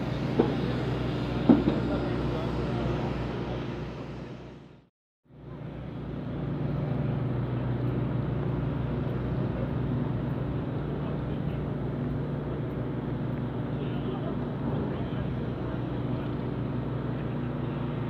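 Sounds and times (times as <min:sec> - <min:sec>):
diesel engines idling: 0:00.0 - 0:18.0.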